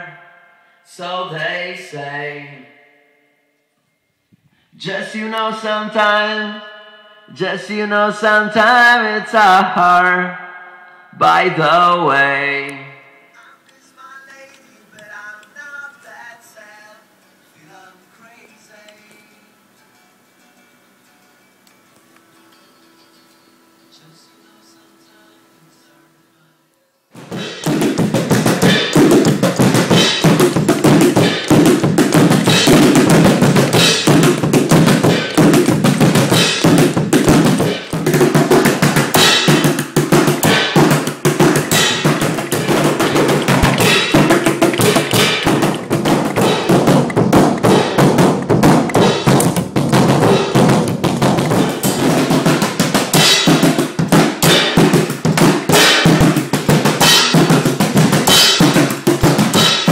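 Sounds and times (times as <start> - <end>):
drum kit busy beat: 27.2 - 59.9
instrumental band music: 27.2 - 59.9.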